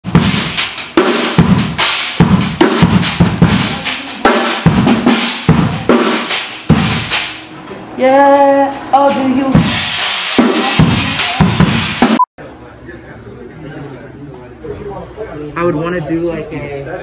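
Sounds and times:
drum kit beat: 0.0s - 12.3s.

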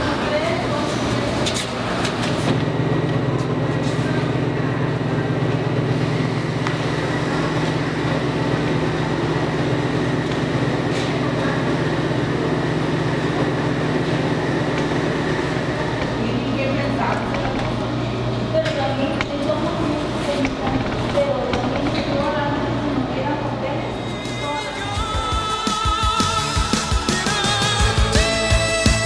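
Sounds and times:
washers and dryers humming: 0.0s - 29.0s.

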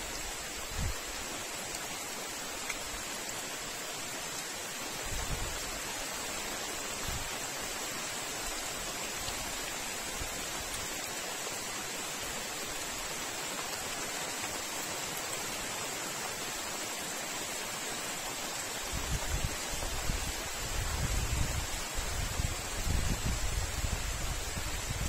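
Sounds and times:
steady background hiss: 0.0s - 25.0s.

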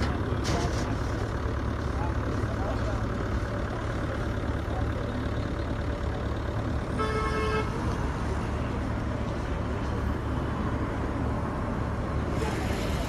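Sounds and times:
road traffic rumble: 0.0s - 13.0s
vehicle horn toot: 6.9s - 7.8s.

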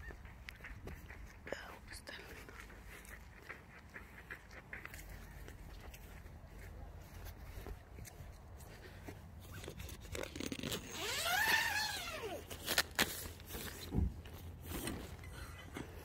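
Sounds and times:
tent zipper pulled: 9.5s - 13.8s
tent fabric rustling: 9.5s - 15.2s.

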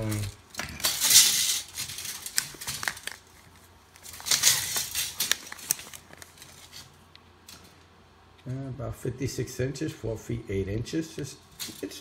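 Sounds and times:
rustling and scraping handling noise: 0.0s - 8.4s.

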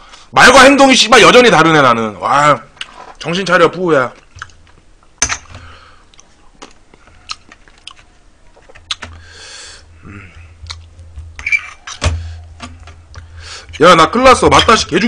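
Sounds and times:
chewing: 2.7s - 3.4s, 4.1s - 4.9s, 6.0s - 9.3s, 10.2s - 12.0s.

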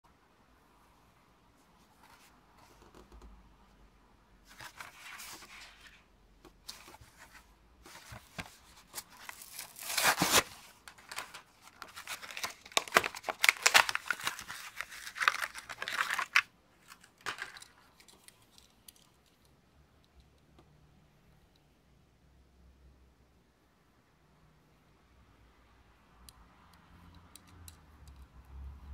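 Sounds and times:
plastic crinkling: 6.7s - 19.2s
cardboard ripping: 8.0s - 16.4s.

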